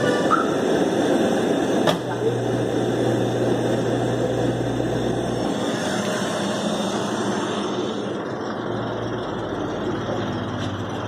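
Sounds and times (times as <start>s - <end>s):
car engine idling: 4.7s - 11.0s.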